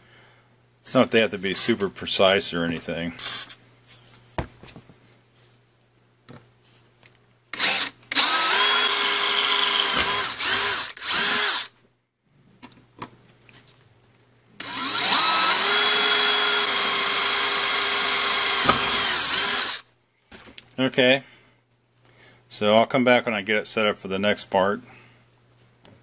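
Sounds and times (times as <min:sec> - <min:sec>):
cordless drill boring metal: 0:07.5 - 0:11.7, 0:14.6 - 0:19.9.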